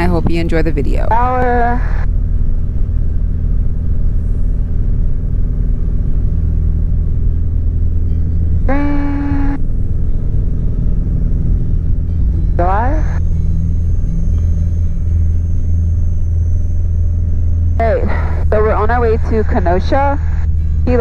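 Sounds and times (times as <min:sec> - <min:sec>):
aircraft engine and propeller drone: 0:00.0 - 0:21.0
short held tone: 0:08.0 - 0:18.4.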